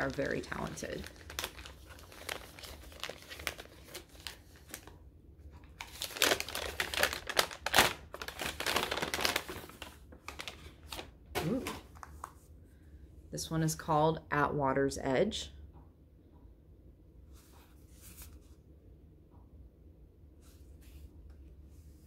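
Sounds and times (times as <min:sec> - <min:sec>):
wrapping paper crinkling and tearing: 0:00.0 - 0:05.0, 0:05.6 - 0:12.3.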